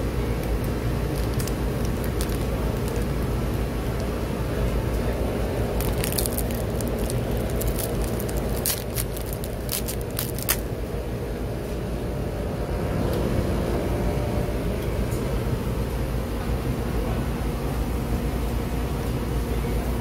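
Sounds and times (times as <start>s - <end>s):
sharp clicks and crackles: 0.4s - 4.2s, 5.7s - 10.7s.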